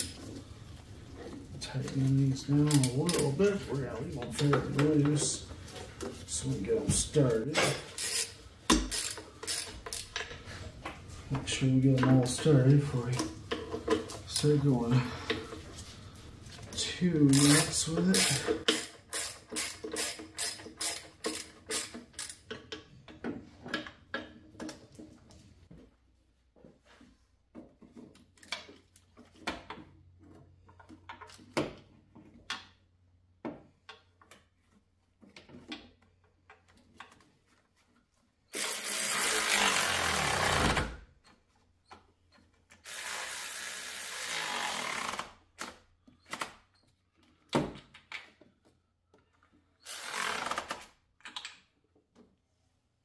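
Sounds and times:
ratchet clicking: 7.9s - 10.3s, 17.3s - 22.5s.

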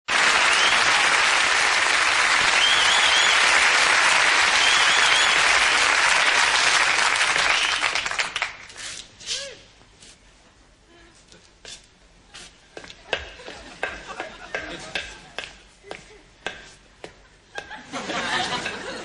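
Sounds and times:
studio audience applauding: 0.1s - 8.7s.

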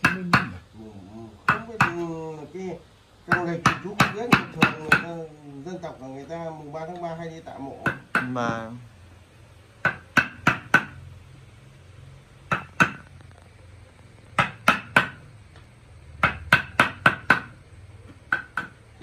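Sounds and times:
hammer striking wood chisel: 0.0s - 0.6s, 1.4s - 2.1s, 3.3s - 5.2s, 7.8s - 8.6s, 9.8s - 11.0s, 12.5s - 13.1s, 14.4s - 15.2s, 16.2s - 17.6s, 18.3s - 18.8s.

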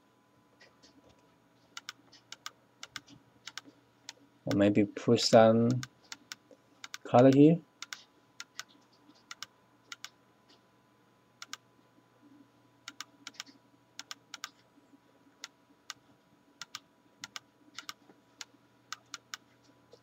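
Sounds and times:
faint steady hum: 0.0s - 20.0s
keyboard and mouse clicks: 0.6s - 4.7s, 5.7s - 10.6s, 11.4s - 11.6s, 12.8s - 14.6s, 16.6s - 20.0s.

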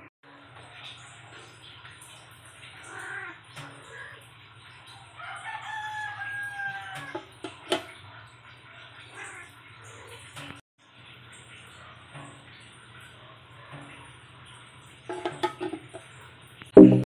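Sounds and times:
rooster crowing: 5.2s - 7.4s
metal lid clacking on pan: 7.0s - 7.9s, 15.1s - 16.1s.

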